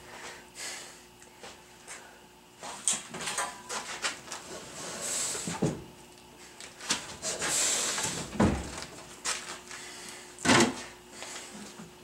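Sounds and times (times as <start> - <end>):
knocks and thumps: 8.2 - 8.8.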